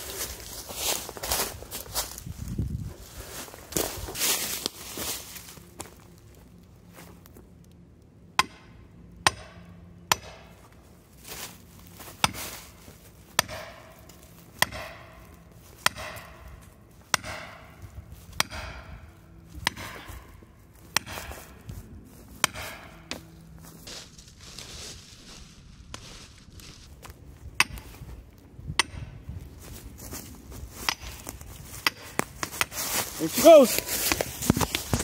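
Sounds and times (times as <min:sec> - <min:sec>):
axe hammering metal wedge: 0:08.4 - 0:10.5, 0:13.4 - 0:14.0, 0:14.6 - 0:16.5, 0:17.1 - 0:17.8, 0:18.4 - 0:19.0, 0:19.6 - 0:20.1, 0:21.0 - 0:21.4, 0:22.4 - 0:23.2, 0:28.8 - 0:29.0.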